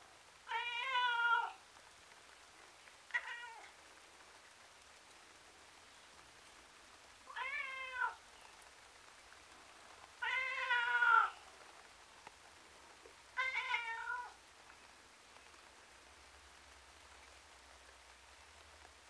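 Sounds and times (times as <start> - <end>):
cat meowing: 0.5 - 1.6, 3.1 - 3.7, 7.3 - 8.2, 10.2 - 11.4, 13.4 - 14.4.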